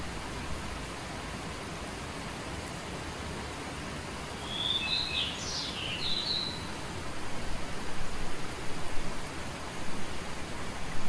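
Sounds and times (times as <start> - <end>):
steady hiss: 0.0 - 11.0
small songbird whistling: 4.4 - 6.7.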